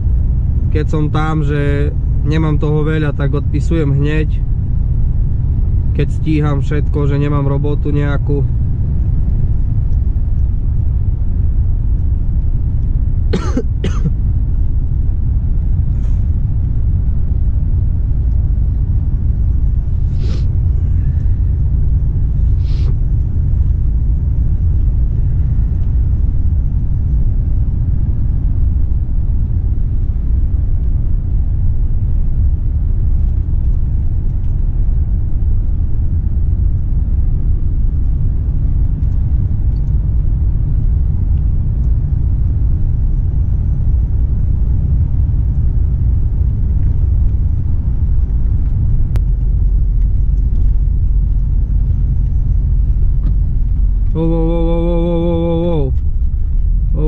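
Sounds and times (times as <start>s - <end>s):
road noise: 0.0s - 57.0s
truck engine drone: 0.0s - 57.0s
person coughing: 13.3s - 14.1s.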